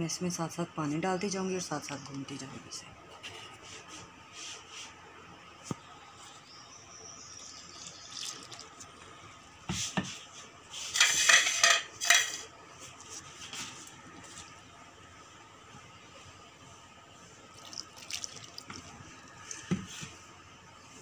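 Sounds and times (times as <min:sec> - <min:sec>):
hand mixing dough in steel bowl: 0:17.4 - 0:20.3.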